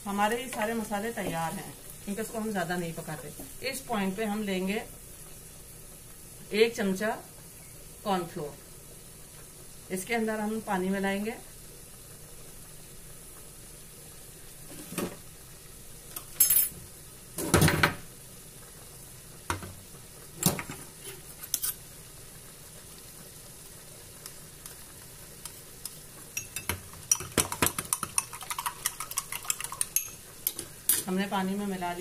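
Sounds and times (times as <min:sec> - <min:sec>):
food sizzling in a frying pan: 0:00.0 - 0:32.0
dishes knocking and clinking: 0:17.4 - 0:18.0, 0:26.4 - 0:31.1
spoon stirring in a small bowl: 0:25.4 - 0:31.1.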